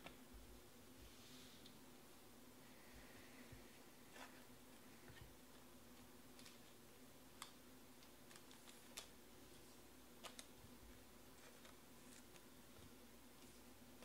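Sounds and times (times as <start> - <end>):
faint steady hum: 0.0 - 14.0
faint irregular clicks: 5.1 - 9.2, 10.2 - 10.6.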